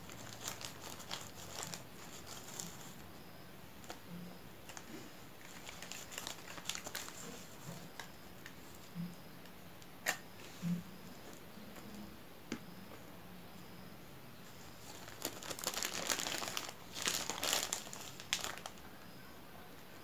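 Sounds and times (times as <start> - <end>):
plastic bag crinkling: 0.0 - 3.0, 4.6 - 7.8, 14.6 - 18.8.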